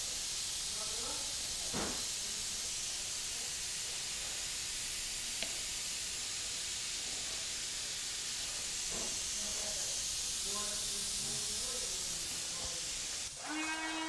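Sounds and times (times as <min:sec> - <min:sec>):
high-pitched hiss: 0:00.0 - 0:14.0.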